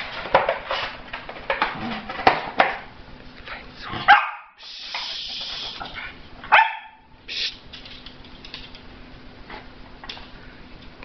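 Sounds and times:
dog barking: 0:04.0 - 0:04.6, 0:06.5 - 0:07.1.

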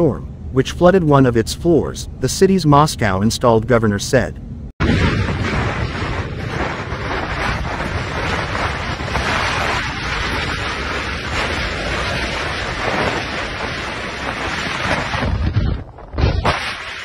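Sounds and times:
wind blowing across microphone: 0:04.8 - 0:17.0.

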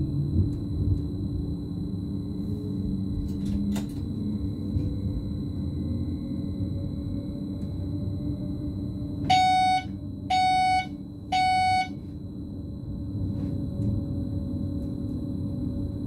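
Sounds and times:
electric train rumble: 0:00.0 - 0:16.0
cab warning beeps: 0:09.3 - 0:12.0.

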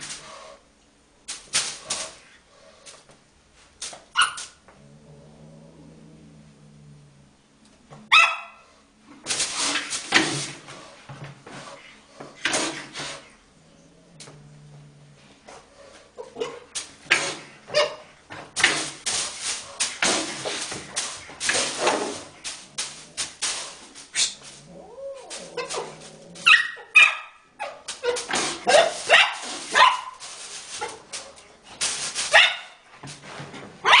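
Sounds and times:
dog barking and yapping: 0:04.1 - 0:04.6, 0:08.1 - 0:08.6, 0:17.7 - 0:18.1, 0:24.8 - 0:30.2, 0:32.3 - 0:32.8.

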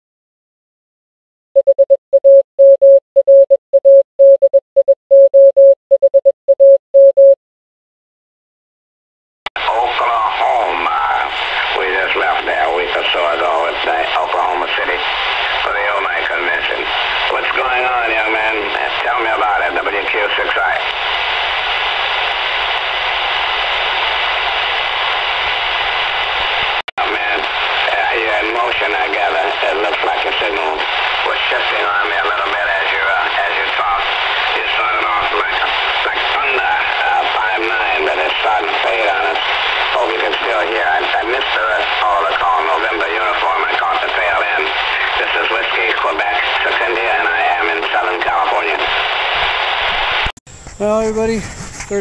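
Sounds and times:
morse code beeps: 0:01.6 - 0:07.4
radio static hiss: 0:09.6 - 0:52.0.

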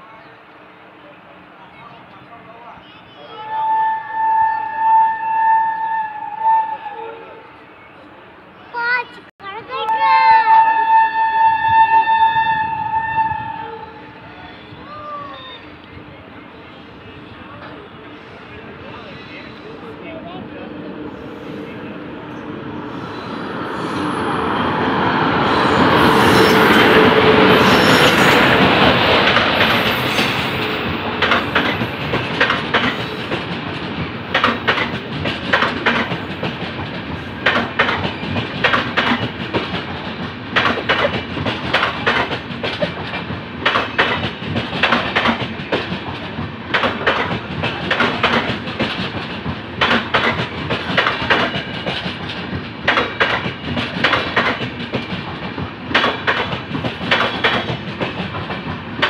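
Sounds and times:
electric locomotive passing: 0:00.0 - 0:59.0
train wheels clacking over rail joints: 0:26.6 - 0:59.0.

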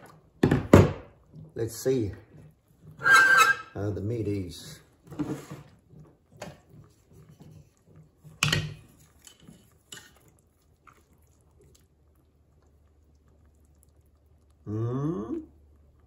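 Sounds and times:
kitchenware clinking and knocking: 0:00.4 - 0:01.2, 0:08.3 - 0:08.9.

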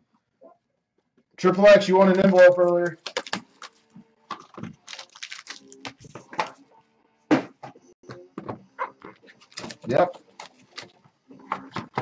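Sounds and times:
cards and packs clicking and crinkling: 0:02.0 - 0:06.6, 0:09.1 - 0:11.0.

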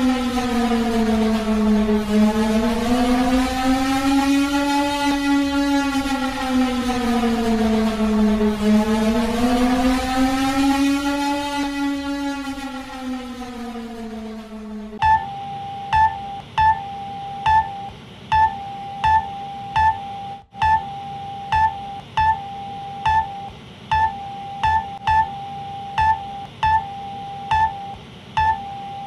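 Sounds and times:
steady alarm tone: 0:00.0 - 0:29.0
alarm short sharp beeps: 0:15.0 - 0:29.0.

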